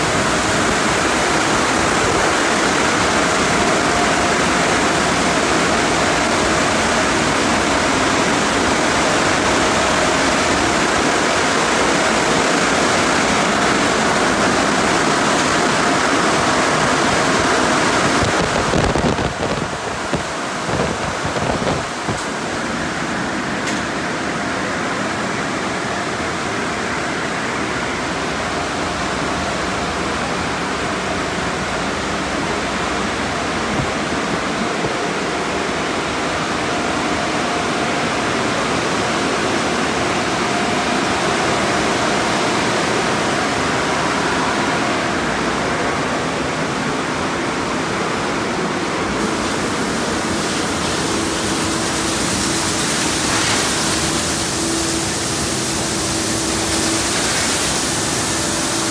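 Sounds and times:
high hiss: 49.2s - 58.9s
water spraying: 49.2s - 58.9s.

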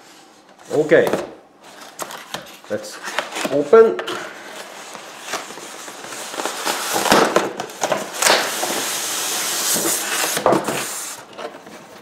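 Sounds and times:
cardboard crackles: 0.7s - 12.0s
cardboard scraping and rubbing: 8.1s - 12.0s.

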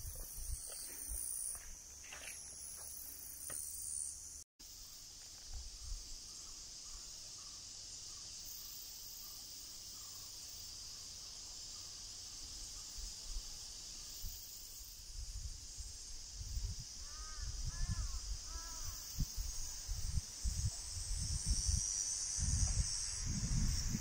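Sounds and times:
high-pitched insect chorus: 0.0s - 24.0s.

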